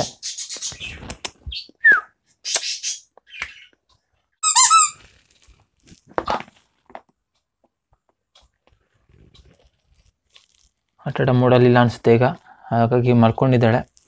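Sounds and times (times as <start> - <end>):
rubber squeaky toy squeaking: 4.4 - 5.1.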